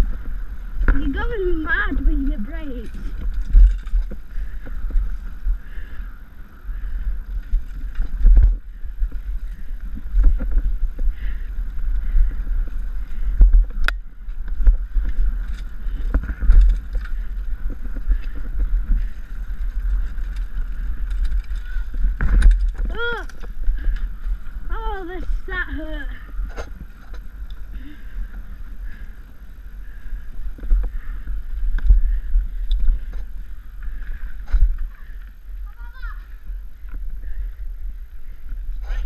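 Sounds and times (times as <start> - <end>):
bike rattles and thumps: 0.0 - 39.0
wind rumble on microphone: 0.0 - 39.0.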